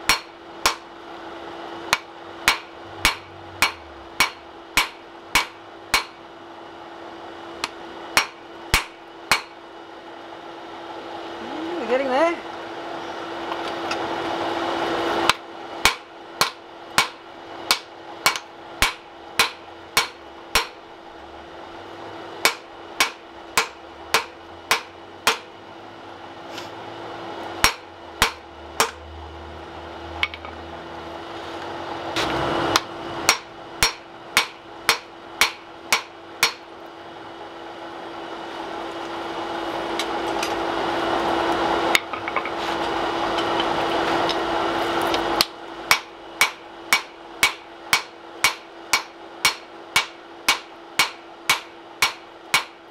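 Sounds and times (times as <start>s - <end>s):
hammer striking steel on anvil: 0.0s - 0.9s, 1.9s - 6.2s, 7.6s - 9.6s, 15.3s - 20.8s, 22.4s - 25.5s, 27.6s - 29.0s, 32.2s - 36.7s, 45.4s - 52.8s.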